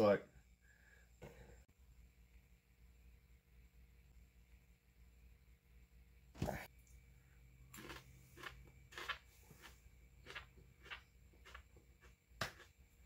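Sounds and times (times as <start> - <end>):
person chewing crunchy pepper: 7.6 - 12.8.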